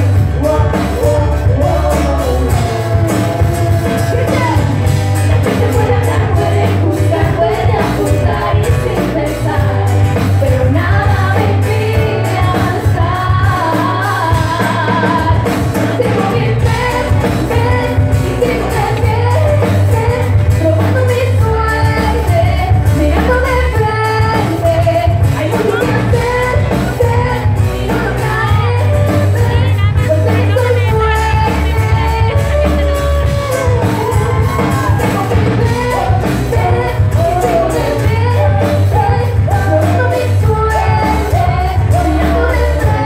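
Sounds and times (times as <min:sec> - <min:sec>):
acoustic guitar: 0:00.0 - 0:43.0
electric bass: 0:00.0 - 0:43.0
person singing: 0:00.0 - 0:43.0.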